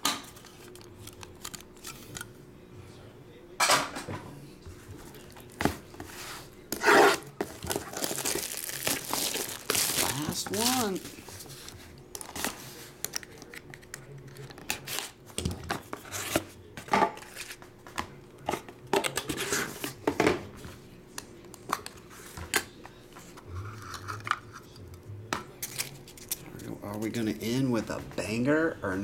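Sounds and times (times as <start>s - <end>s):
cardboard tearing: 6.8s - 11.2s.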